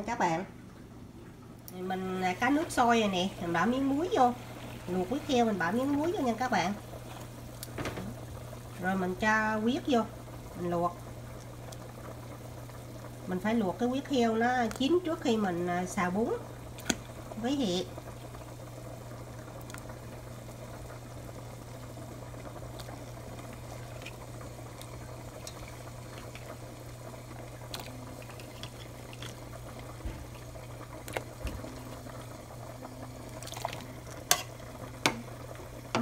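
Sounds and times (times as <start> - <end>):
low steady hum: 0.0 - 36.0
water bubbling at a boil: 0.7 - 36.0.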